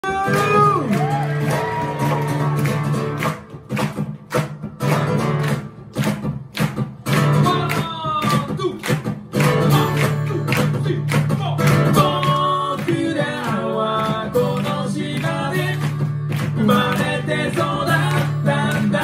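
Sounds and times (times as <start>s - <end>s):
acoustic guitars strumming: 0.0s - 19.0s
person singing: 9.6s - 11.1s, 11.9s - 19.0s.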